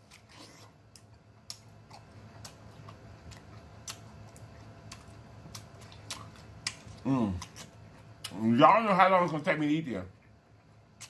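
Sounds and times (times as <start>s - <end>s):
wet chewing clicks and smacks: 0.0s - 8.4s
faint low hum: 0.0s - 11.0s.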